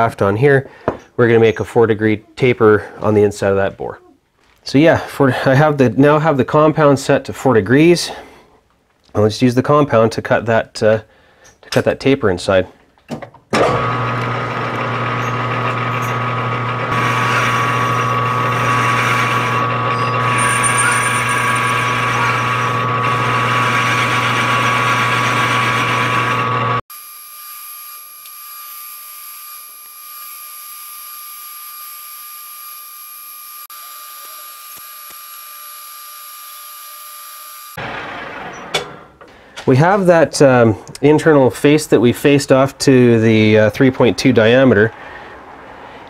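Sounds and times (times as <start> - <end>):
lathe motor and gear hum: 13.6 - 26.8
metal cutting noise: 13.6 - 39.0.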